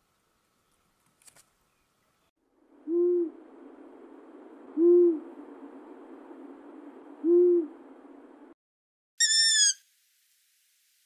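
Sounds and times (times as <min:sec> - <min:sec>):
owl hooting: 0:02.8 - 0:03.4, 0:04.7 - 0:05.3, 0:07.2 - 0:07.8, 0:09.2 - 0:09.8
faint steady hiss: 0:09.8 - 0:11.0.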